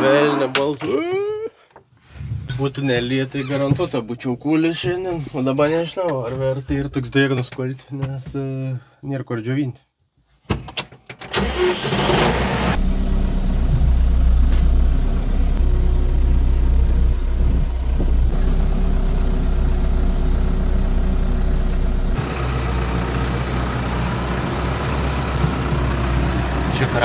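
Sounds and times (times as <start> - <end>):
tractor diesel engine running: 11.4 - 27.0.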